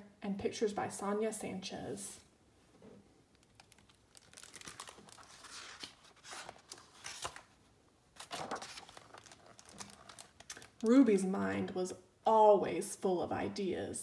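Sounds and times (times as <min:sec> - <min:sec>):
book pages rustling and crinkling: 0:02.8 - 0:11.0.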